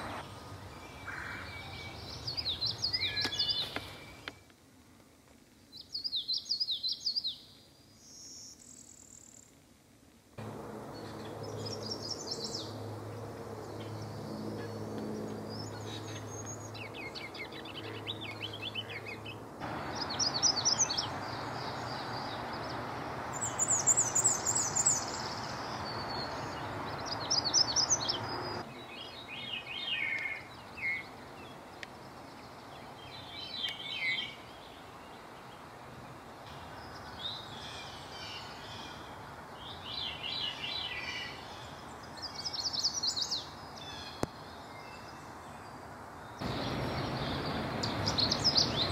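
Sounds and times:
songbirds singing: 0.0 - 4.5, 5.7 - 9.6, 10.4 - 48.9
steady background hum: 10.4 - 28.6.

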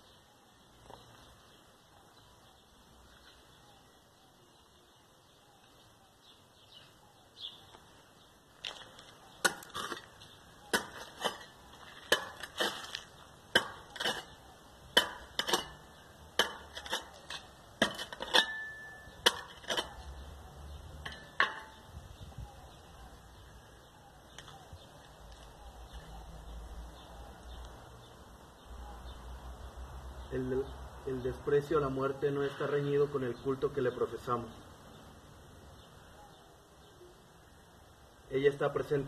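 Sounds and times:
hand tool chopping into ground: 9.4 - 20.0.

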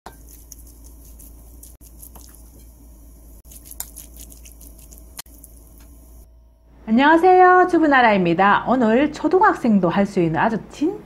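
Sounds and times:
wet squishing: 0.1 - 2.6, 3.4 - 5.9.

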